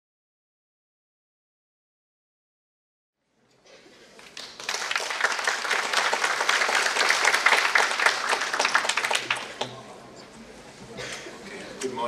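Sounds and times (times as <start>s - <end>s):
audience applauding: 4.2s - 9.8s.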